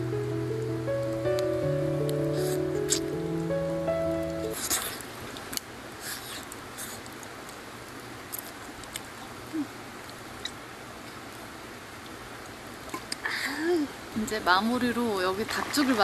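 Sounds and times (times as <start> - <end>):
stream rushing: 15.0 - 16.0.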